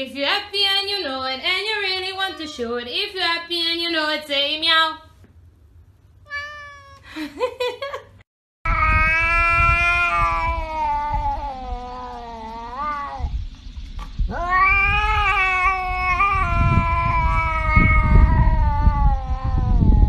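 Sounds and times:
cat yowling: 6.3 - 7.1, 8.7 - 13.3, 14.3 - 20.0.

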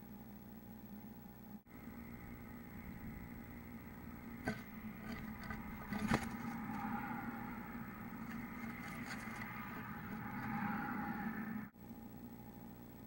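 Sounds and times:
microphone hum and hiss: 1.3 - 10.5
bird feet scratching: 4.2 - 10.7
sharp knocks on nest box: 4.4 - 6.8.

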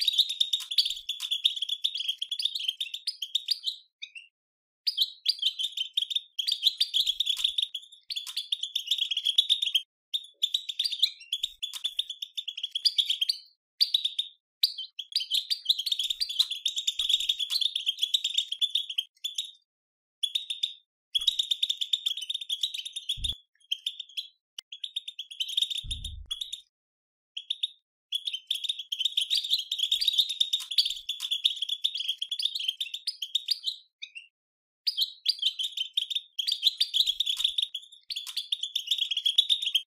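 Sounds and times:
low thumps: 25.9 - 26.4.

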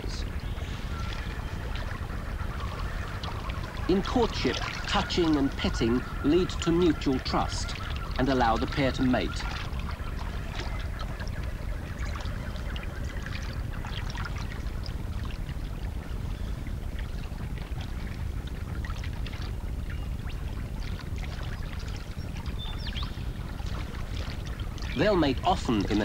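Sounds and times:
animals splashing in water: 0.0 - 26.0
flowing water rushing: 0.0 - 26.0.

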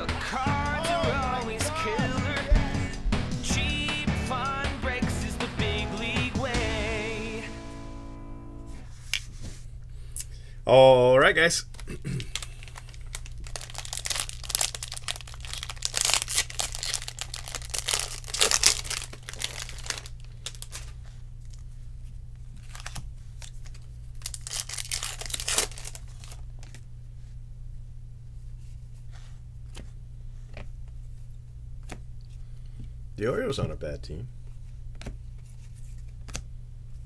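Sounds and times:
foil wrapper tearing and crinkling: 12.2 - 21.6, 22.5 - 26.8
cards clicking and sliding: 34.9 - 36.5.

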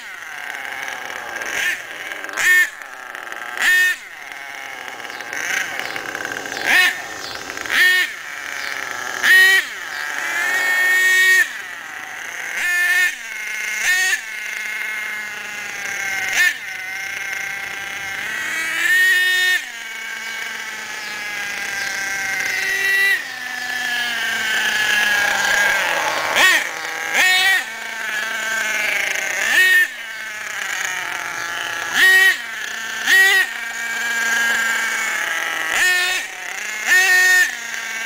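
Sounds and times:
engine buzzing idle: 0.0 - 38.0
small two-stroke engine revving: 0.0 - 38.0.

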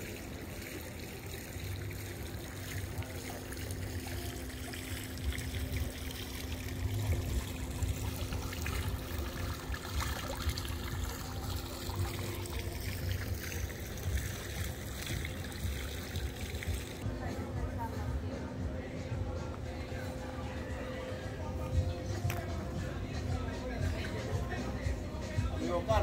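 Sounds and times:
fountain water splashing: 0.0 - 17.0
low hum: 1.7 - 25.2
low rumble on microphone: 1.7 - 25.5.

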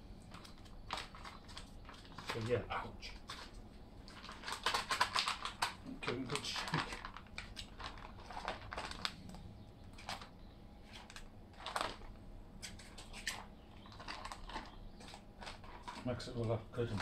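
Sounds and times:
food pouch packaging crinkling: 0.2 - 17.0.

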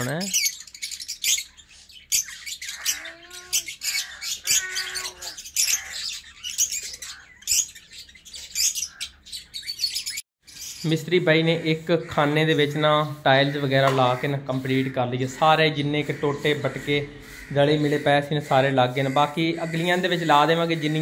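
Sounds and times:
parakeets squawking and chirping: 0.0 - 21.0
low voice-like bird calls: 2.2 - 10.2.

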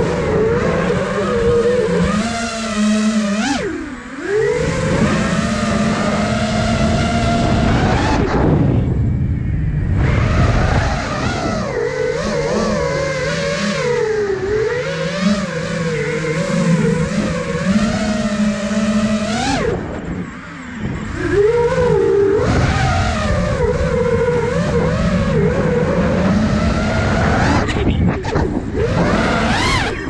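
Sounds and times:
quadcopter propellers whining: 0.0 - 30.0.

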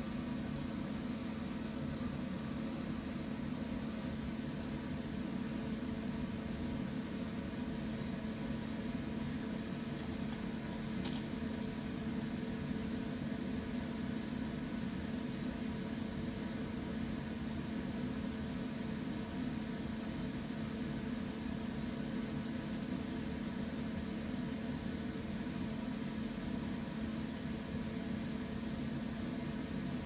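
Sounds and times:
electric fan humming and whirring: 0.0 - 30.0.

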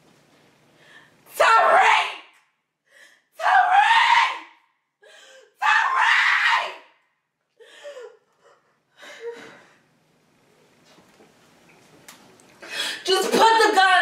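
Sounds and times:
woman screaming and wailing: 3.4 - 4.5, 5.5 - 6.8
woman sobbing: 7.6 - 9.7.

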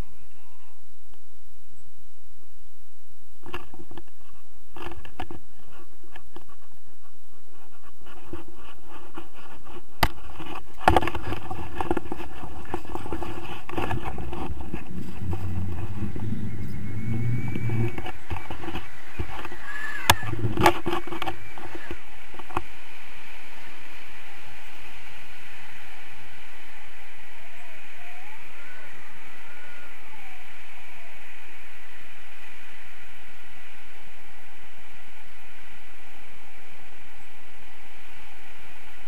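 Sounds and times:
wind buffeting microphone: 3.7 - 32.7.

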